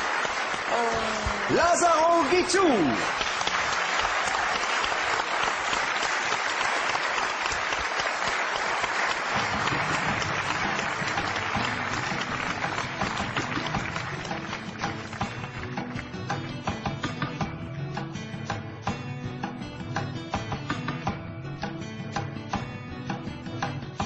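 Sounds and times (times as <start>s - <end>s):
audience applauding: 0.0s - 16.1s.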